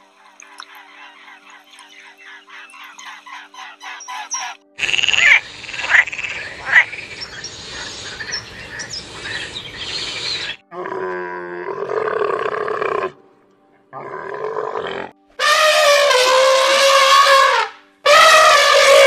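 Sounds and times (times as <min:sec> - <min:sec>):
noisy pond background: 0:00.0 - 0:15.7
frog croaking: 0:04.4 - 0:11.2
camel grunting bellow: 0:10.7 - 0:13.2, 0:13.9 - 0:15.2.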